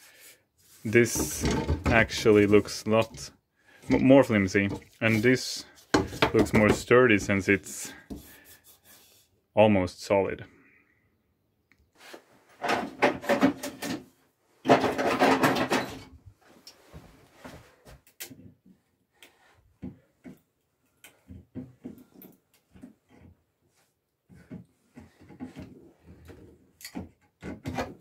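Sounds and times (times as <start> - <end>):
tools clattering on wooden workbench: 1.0 - 2.4, 5.9 - 6.8, 12.6 - 16.2.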